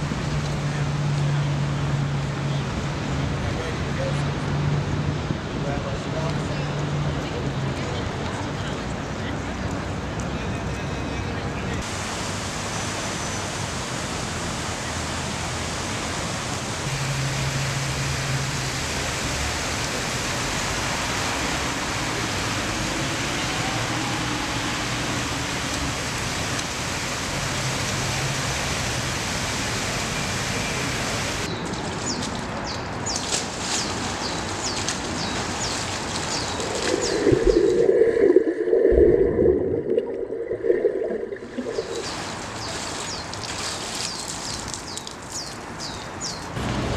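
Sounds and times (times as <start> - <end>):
fountain water rushing: 0.0 - 32.2, 33.6 - 45.8
water splashing: 11.8 - 45.4
muffled underwater swimming: 36.6 - 42.2.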